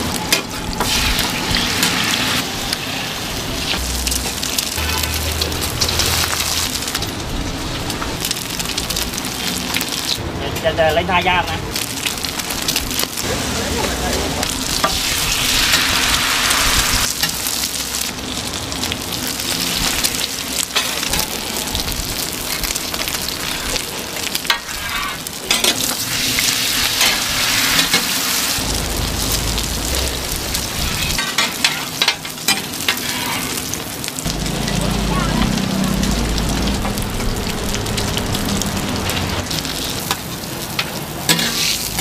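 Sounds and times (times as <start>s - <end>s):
pancakes sizzling on griddle: 0.0s - 10.2s, 11.2s - 42.0s
metal spatulas scraping griddle: 4.8s - 6.5s, 24.5s - 26.3s, 30.7s - 33.6s, 41.3s - 42.0s.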